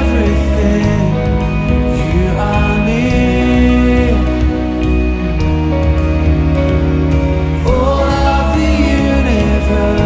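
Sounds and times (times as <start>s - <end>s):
person singing: 0.0s - 5.4s, 7.5s - 10.0s
pop song with sustained chords: 0.0s - 10.0s.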